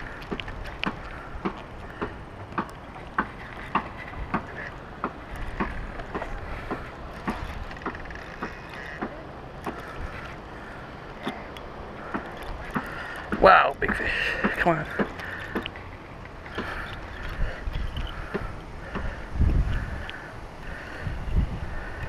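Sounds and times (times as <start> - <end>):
fishing reel clicking: 2.6 - 9.0, 14.6 - 18.7.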